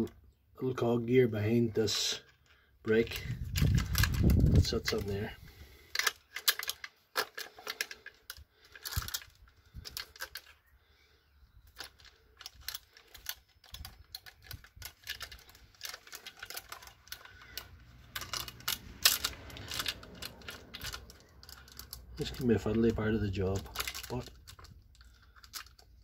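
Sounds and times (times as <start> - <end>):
chainsaw chain clinking: 11.8 - 25.8.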